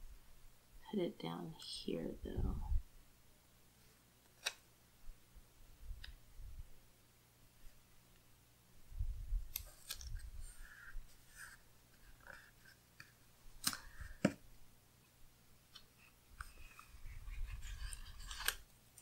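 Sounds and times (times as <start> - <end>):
paper rustling: 16.4 - 19.0.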